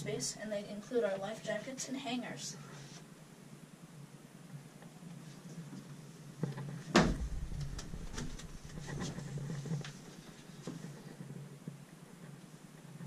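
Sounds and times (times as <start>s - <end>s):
loud thump: 6.9s - 9.3s.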